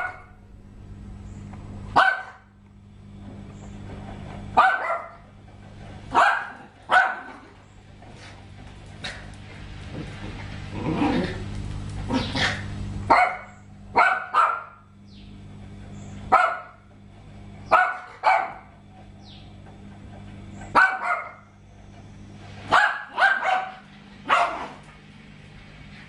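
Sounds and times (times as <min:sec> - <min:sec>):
dog barking: 0:00.0 - 0:00.4, 0:02.0 - 0:02.5, 0:04.6 - 0:05.3, 0:06.1 - 0:07.4, 0:13.1 - 0:14.9, 0:16.3 - 0:16.8, 0:17.7 - 0:18.7, 0:20.7 - 0:21.5, 0:22.7 - 0:24.8
low steady hum: 0:00.0 - 0:26.0.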